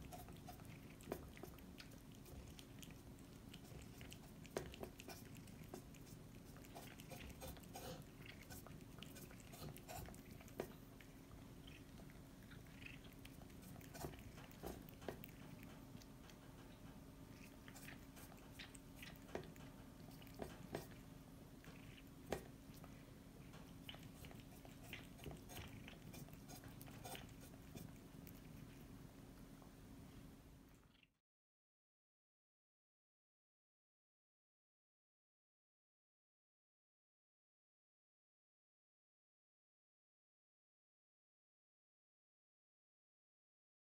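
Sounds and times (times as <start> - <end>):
cat licking from bowl: 0.0 - 29.0.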